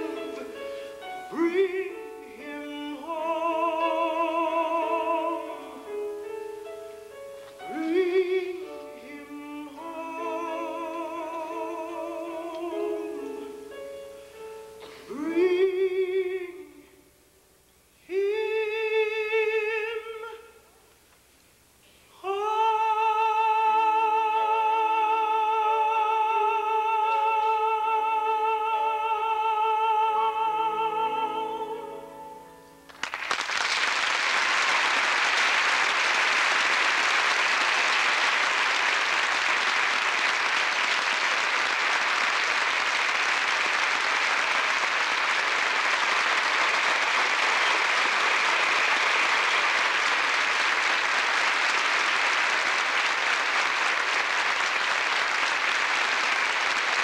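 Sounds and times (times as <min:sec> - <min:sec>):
man singing high note with vibrato: 0:07.6 - 0:13.7
audience applause: 0:32.9 - 0:57.0.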